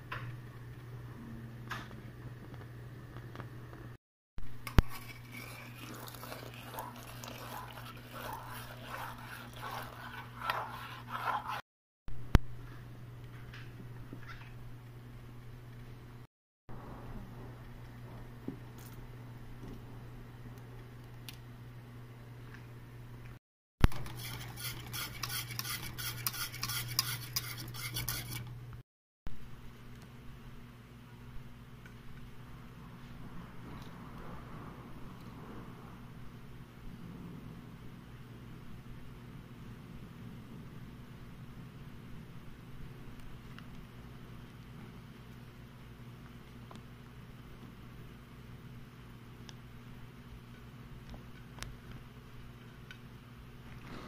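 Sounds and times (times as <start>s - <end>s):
low steady hum: 0.0s - 26.0s, 27.2s - 54.0s
metal spoon scraping a pot: 4.6s - 11.6s, 23.9s - 28.5s.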